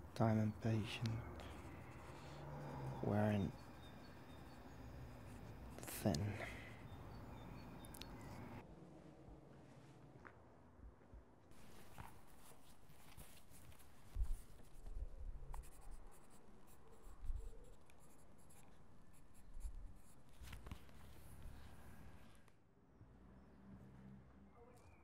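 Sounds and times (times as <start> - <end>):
pencil scratching on paper: 0.5 - 6.2, 12.0 - 21.9.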